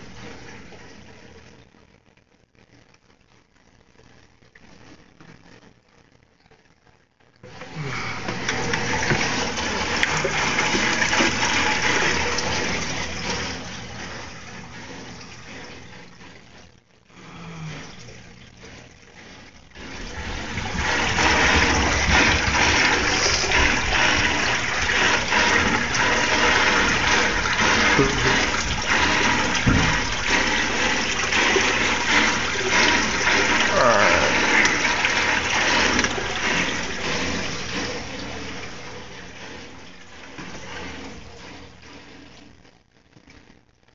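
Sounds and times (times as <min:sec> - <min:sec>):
water rushing and splashing: 0:19.9 - 0:39.0.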